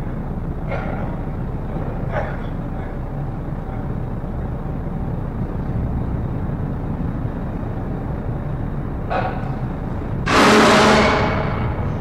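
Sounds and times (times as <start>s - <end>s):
ferry engines rumbling: 0.0s - 12.0s.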